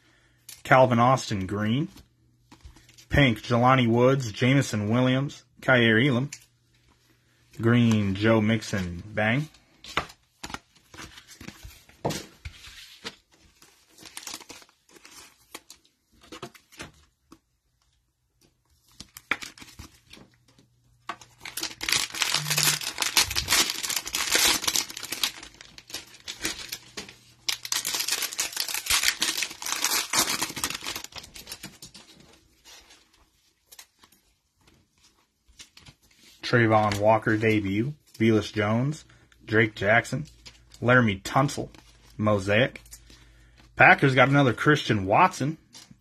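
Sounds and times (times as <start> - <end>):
cellophane wrapper crinkling: 13.4 - 16.6, 21.2 - 34.3.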